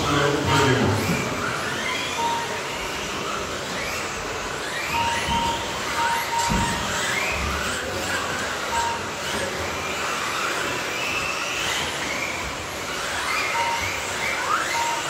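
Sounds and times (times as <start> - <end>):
rc car motors whining: 0.0 - 15.0
short electronic beep: 2.2 - 2.7, 4.9 - 7.4, 8.7 - 9.1, 13.5 - 15.0.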